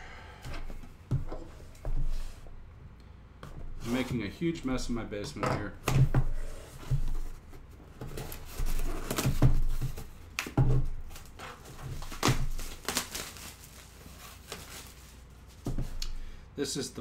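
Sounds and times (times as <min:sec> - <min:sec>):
packaging crinkling: 0:11.1 - 0:15.6.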